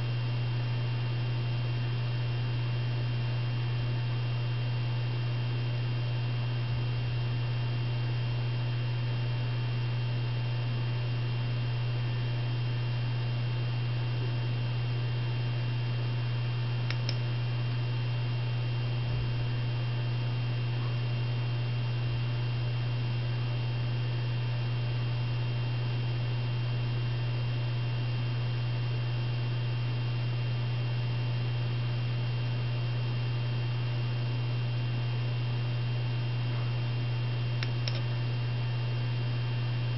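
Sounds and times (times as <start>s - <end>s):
low electrical hum: 0.0s - 39.9s
short click: 16.9s - 17.2s, 37.6s - 38.1s.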